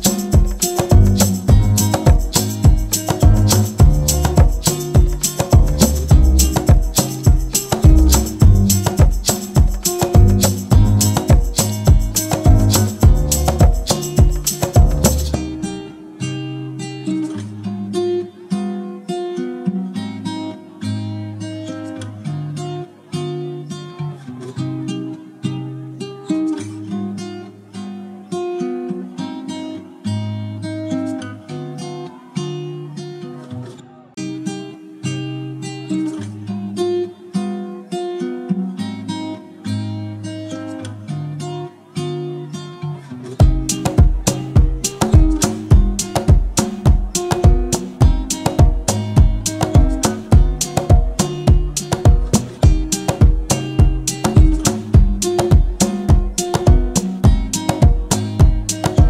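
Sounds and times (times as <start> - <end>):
loud music beat: 0.0 - 15.5, 43.4 - 59.0
acoustic guitar playing: 0.0 - 59.0.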